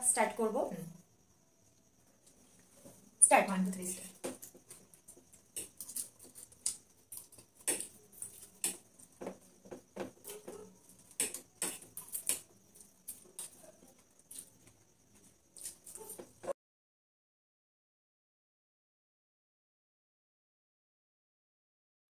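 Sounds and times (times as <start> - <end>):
chewing: 4.4 - 16.5.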